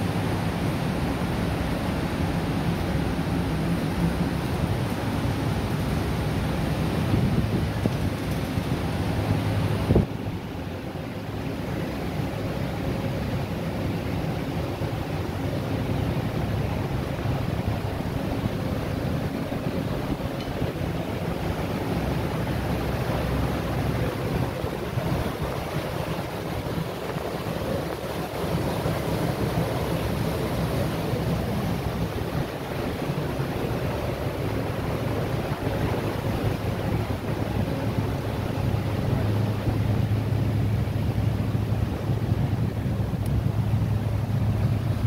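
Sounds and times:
wind on microphone: 0:00.0 - 0:13.3
ferry engine drone: 0:00.0 - 0:45.0
rushing harbour water: 0:00.0 - 0:45.0.

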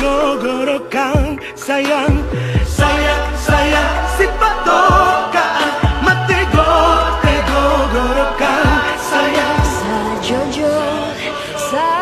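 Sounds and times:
man singing: 0:00.0 - 0:11.8
deep drum beats: 0:02.1 - 0:08.9.

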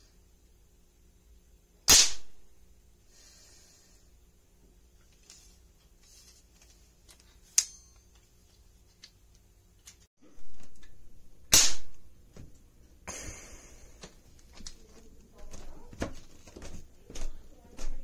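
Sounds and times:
cap gun bang: 0:01.9 - 0:02.3, 0:11.5 - 0:11.9
cap gun crack: 0:01.9 - 0:02.3, 0:11.5 - 0:12.0.

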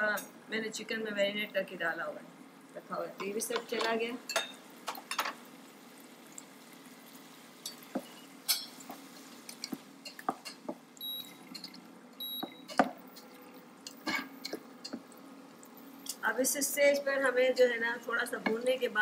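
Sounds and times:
short high beeps: 0:11.0 - 0:11.4, 0:12.2 - 0:12.7.

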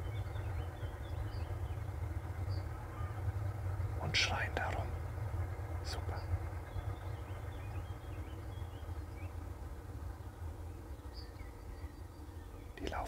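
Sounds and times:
steady low rumble: 0:00.0 - 0:13.0
faint bird chirps: 0:03.9 - 0:05.0, 0:05.8 - 0:09.5, 0:10.1 - 0:13.0.

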